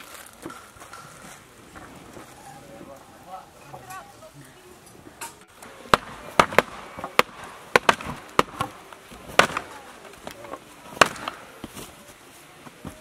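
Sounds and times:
sharp knocks: 0:05.9 - 0:09.7.

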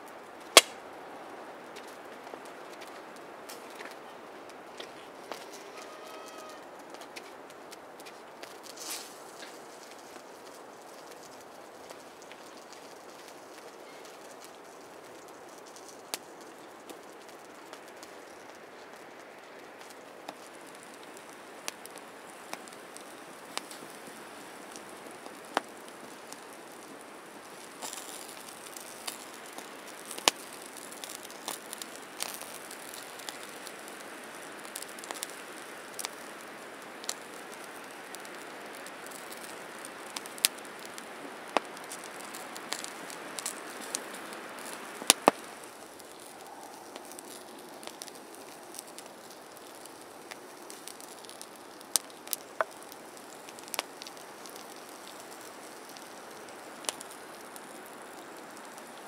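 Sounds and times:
campfire crackling and popping: 0:00.0 - 0:59.0
loud wood snaps: 0:00.6 - 0:00.8
wet snow hissing on tarp: 0:08.6 - 0:09.8.

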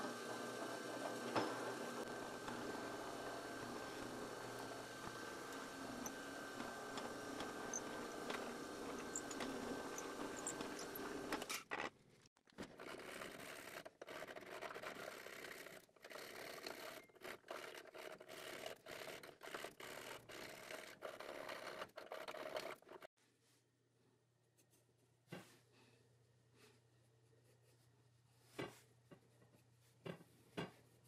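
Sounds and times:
drill press boring: 0:00.0 - 0:11.4
drill bit scraping by hand: 0:00.6 - 0:11.4.

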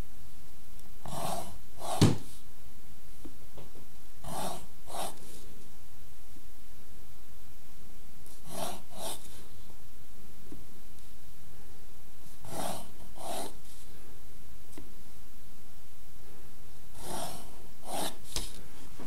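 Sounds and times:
pencil scratching on paper: 0:01.0 - 0:02.3, 0:04.2 - 0:05.4, 0:08.3 - 0:09.5, 0:12.4 - 0:13.9, 0:17.0 - 0:18.6.

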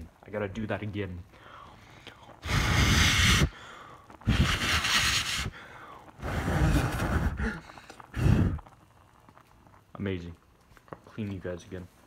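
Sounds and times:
person blowing hard: 0:02.4 - 0:08.7.

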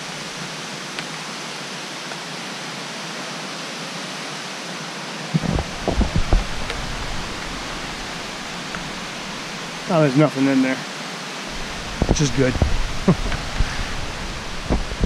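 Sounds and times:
waterfall rushing: 0:00.0 - 0:15.0
camera jostling thumps: 0:05.4 - 0:09.1, 0:11.6 - 0:15.0.

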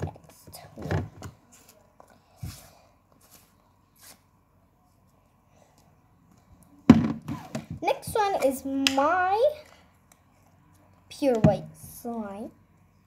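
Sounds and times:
plastic tub knock: 0:06.9 - 0:07.8.

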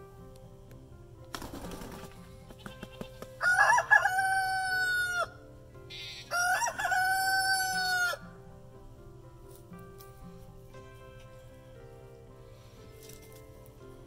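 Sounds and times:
rooster crowing: 0:03.4 - 0:05.4, 0:06.0 - 0:08.2.

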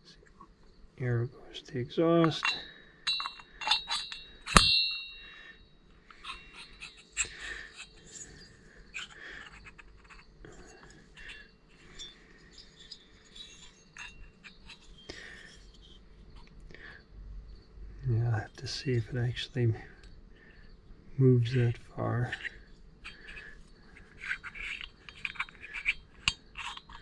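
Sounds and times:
metal parts clinking: 0:02.2 - 0:05.2, 0:06.1 - 0:16.0, 0:21.4 - 0:27.0.

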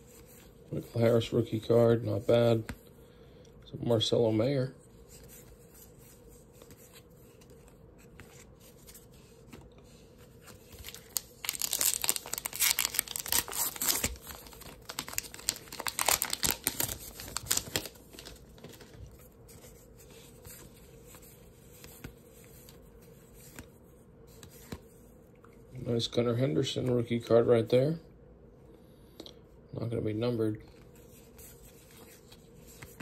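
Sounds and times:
faint card handling: 0:04.9 - 0:25.6
wrapper tearing and crinkling: 0:10.7 - 0:19.0.

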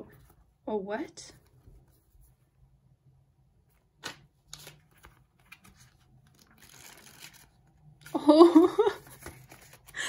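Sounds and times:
paper and cardboard rustling: 0:04.0 - 0:10.0.

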